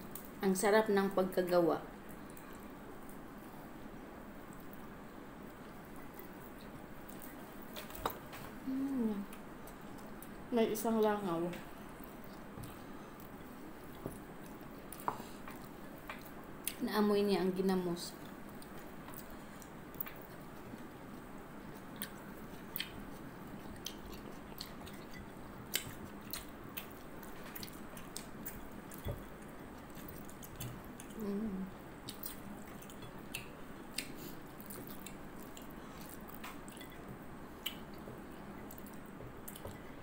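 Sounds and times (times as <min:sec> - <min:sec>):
person humming: 0:08.6 - 0:09.4, 0:31.2 - 0:31.7
person chewing: 0:18.2 - 0:40.0.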